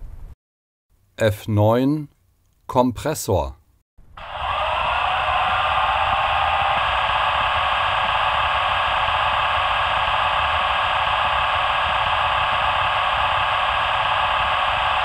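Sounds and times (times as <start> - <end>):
air compressor running from small speaker: 4.2 - 15.0.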